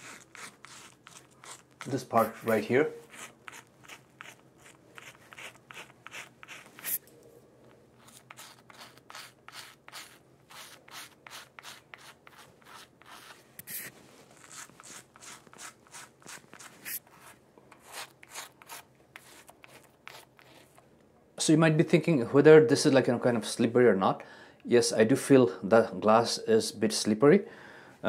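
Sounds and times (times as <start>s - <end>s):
razor scraping stubble: 0.0s - 7.1s, 8.0s - 20.8s.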